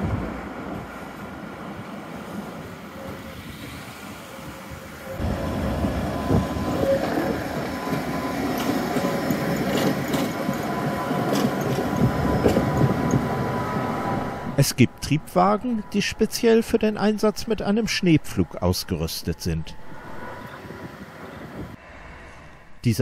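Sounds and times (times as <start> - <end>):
tram rolling past: 0.0 - 14.8, 19.7 - 22.5.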